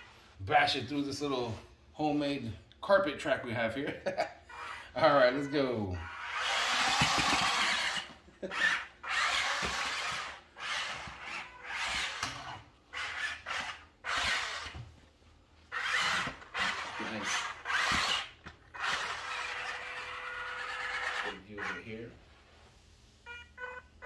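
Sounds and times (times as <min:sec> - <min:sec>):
toy truck motors whirring: 0:04.5 - 0:05.1, 0:06.0 - 0:14.8, 0:15.7 - 0:21.9.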